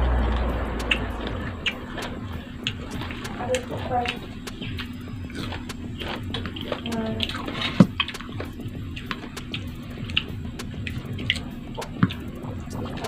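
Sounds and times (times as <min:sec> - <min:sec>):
chewing crisp fruit: 0:00.0 - 0:13.0
wet mouth clicks: 0:00.8 - 0:13.0.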